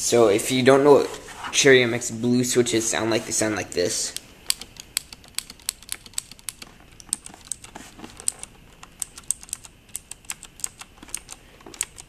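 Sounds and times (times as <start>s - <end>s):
mechanical keyboard clicking: 4.5s - 12.0s.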